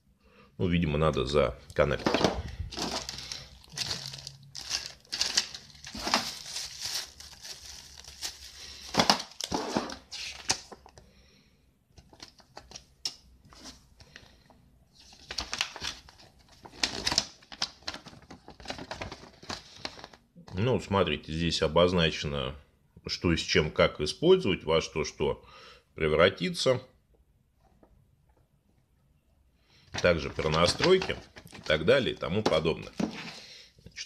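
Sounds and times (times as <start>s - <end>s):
plastic and paper crinkling: 1.8s - 11.0s, 14.9s - 20.2s, 30.0s - 33.4s.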